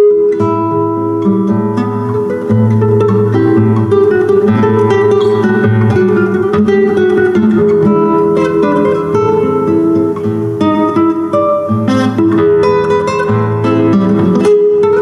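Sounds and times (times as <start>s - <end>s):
fingerpicked classical guitar waltz: 0.0s - 15.0s.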